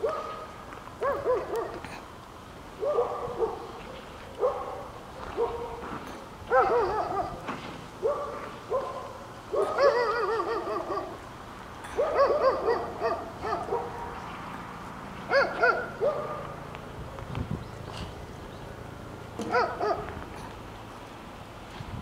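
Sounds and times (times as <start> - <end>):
dog yodelling yips: 6.5 - 7.4, 9.6 - 11.2.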